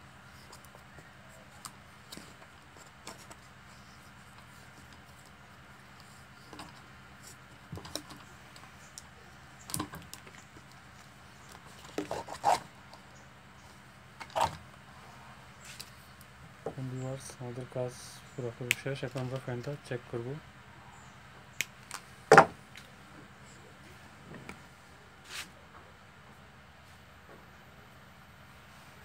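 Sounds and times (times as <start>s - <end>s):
tape rustling and clicking: 0.4s - 13.2s, 21.5s - 22.1s.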